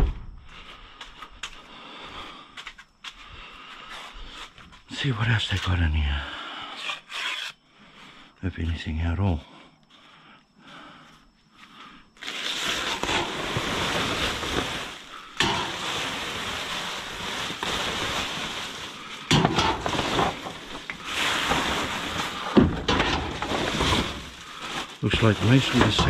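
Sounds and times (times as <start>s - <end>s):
rubbish rustling and crackling: 12.2s - 26.0s.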